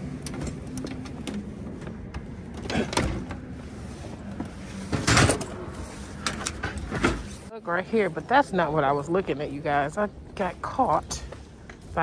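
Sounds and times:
knocks and rustling: 0.2 - 7.5.

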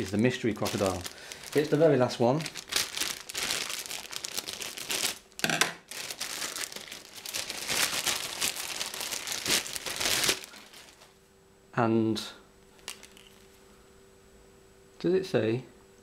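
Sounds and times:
plastic bag crinkling: 0.0 - 11.2, 12.8 - 13.6.

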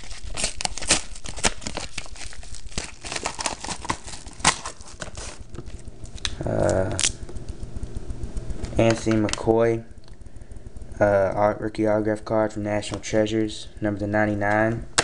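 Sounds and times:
packaging crinkling and rustling: 0.0 - 7.2.

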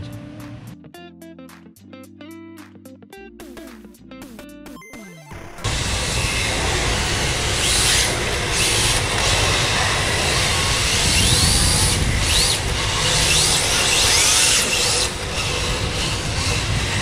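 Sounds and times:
electric motors whining: 5.4 - 17.0
low rumble: 5.6 - 17.0.

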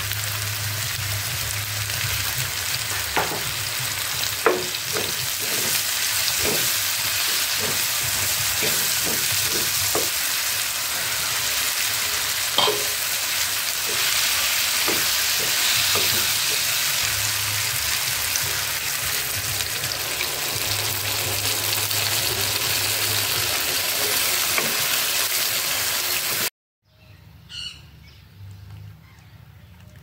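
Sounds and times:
vegetables sizzling in pan: 0.0 - 26.5
wooden spatula scraping pan: 4.5 - 10.3.

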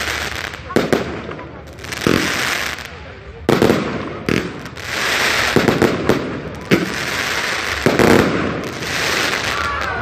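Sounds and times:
continuous hiss: 0.0 - 10.0
fireworks bangs: 0.0 - 10.0.

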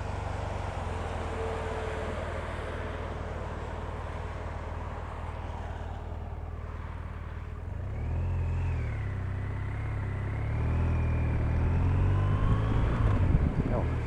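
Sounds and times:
wet road noise: 0.0 - 14.0
wind: 0.0 - 14.0
motorcycle engine accelerating: 7.8 - 14.0.

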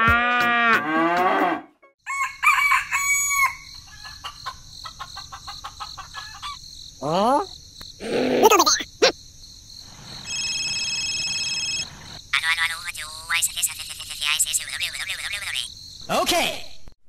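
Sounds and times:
low moo-like call: 0.0 - 1.7
chicken clucking: 3.9 - 6.6.

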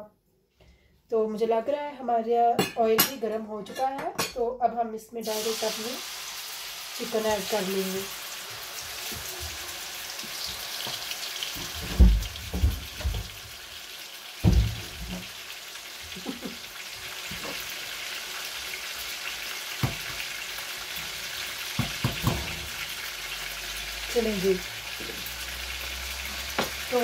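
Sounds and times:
chicken sizzling in hot oil: 5.2 - 27.0
dull knocks in pan: 11.6 - 13.4, 14.4 - 15.2, 21.8 - 22.6.

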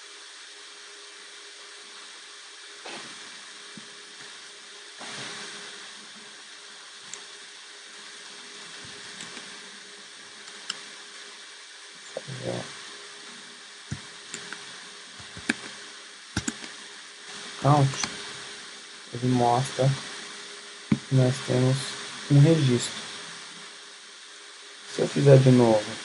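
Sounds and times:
steady background hiss: 0.0 - 26.0
keyboard keys typing: 16.4 - 16.7.

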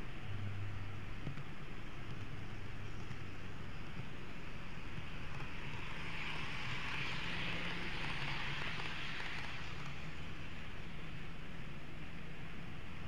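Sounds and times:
model train whirring and rolling: 2.8 - 13.0.

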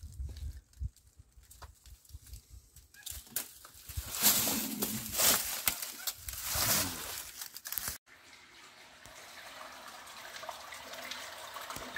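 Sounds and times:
footsteps crunching dry leaves: 3.2 - 8.0.

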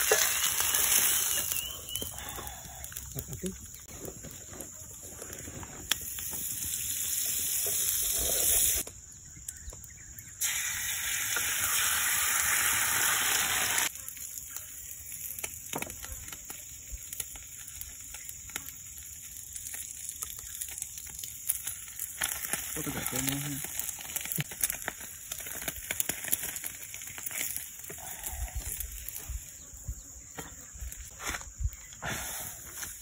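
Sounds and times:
egg sizzling in a frying pan: 0.0 - 3.1, 5.8 - 8.9, 10.4 - 29.6
faint crackles: 0.0 - 9.9, 12.4 - 33.0.

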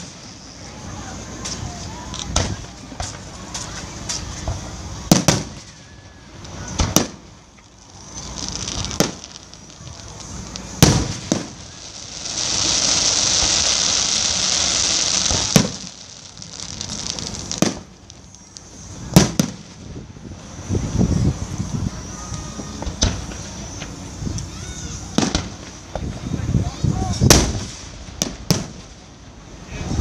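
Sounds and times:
firework shells bursting: 0.0 - 20.1, 25.1 - 26.1, 27.2 - 29.2
loud firework hiss: 0.0 - 30.0.

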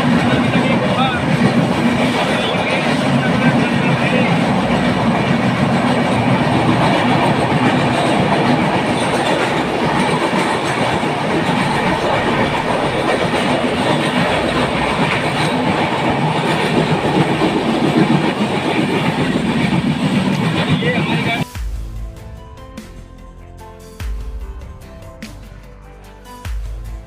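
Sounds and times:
train wheels on rails in tunnel: 0.0 - 21.5.

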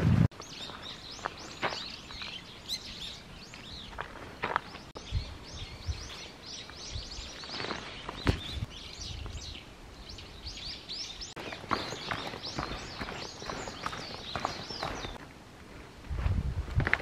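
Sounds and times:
footsteps on trail: 0.3 - 5.0, 6.0 - 8.7, 11.4 - 15.3
birds chirping: 0.3 - 15.3.

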